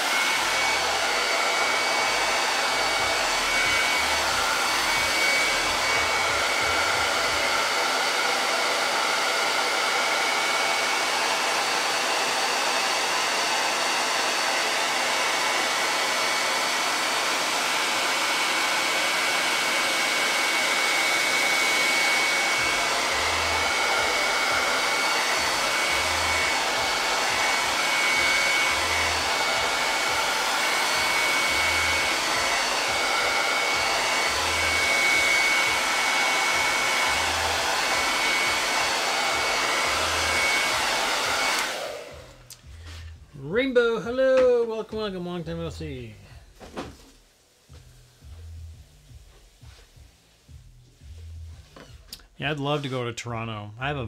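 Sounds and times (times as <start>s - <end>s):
hair dryer running: 0.0s - 52.9s.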